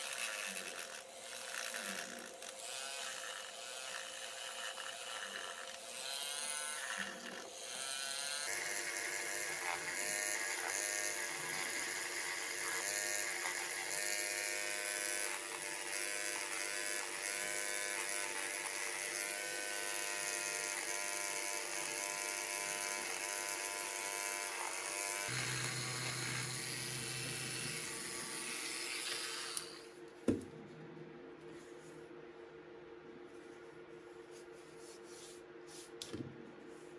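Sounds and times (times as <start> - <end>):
rotary tool sanding clay: 0.0 - 29.8.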